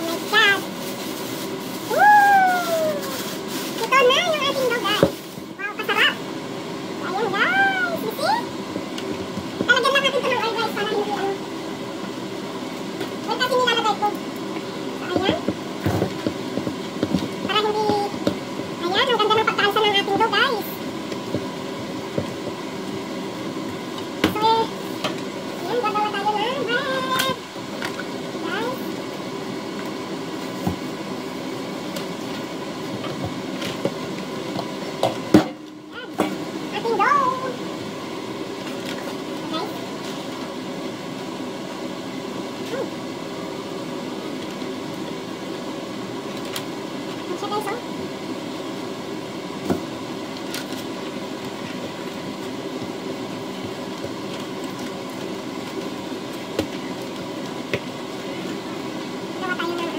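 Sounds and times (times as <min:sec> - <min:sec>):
dough kneaded by hand: 0:00.0 - 0:05.6
steady background hum: 0:00.0 - 0:59.9.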